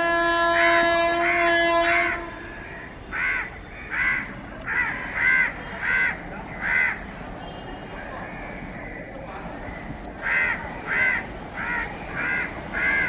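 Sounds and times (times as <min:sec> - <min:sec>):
locomotive horn: 0:00.0 - 0:02.5
bird calling: 0:02.4 - 0:13.0.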